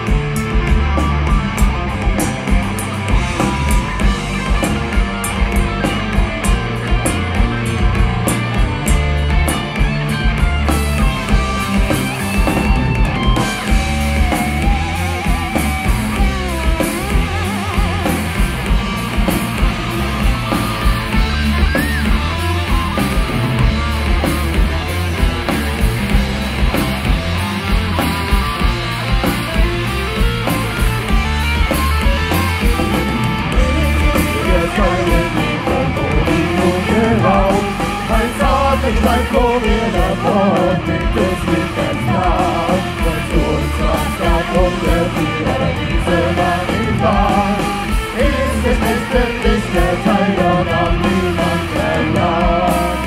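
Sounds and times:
metal band playing live: 0.0s - 53.0s.

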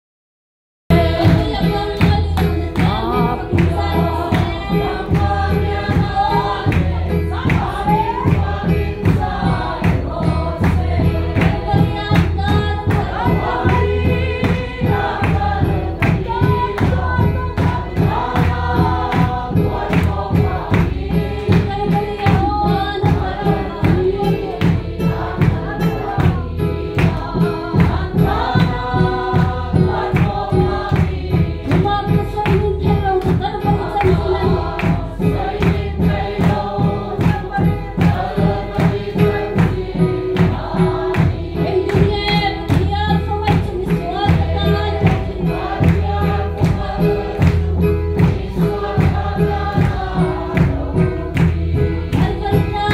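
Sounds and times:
woman singing into a microphone: 0.9s - 9.6s, 11.4s - 15.0s, 21.4s - 29.9s, 31.6s - 35.4s, 40.8s - 45.6s, 51.8s - 52.9s
congregation singing: 0.9s - 52.9s
electric keyboard fast beat: 0.9s - 52.9s.

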